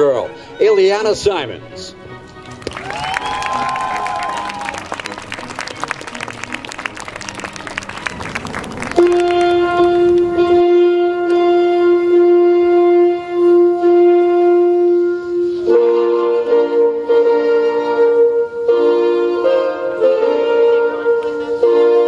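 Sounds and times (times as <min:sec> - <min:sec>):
music with held notes: 0:00.0 - 0:22.0
applause: 0:02.4 - 0:10.3.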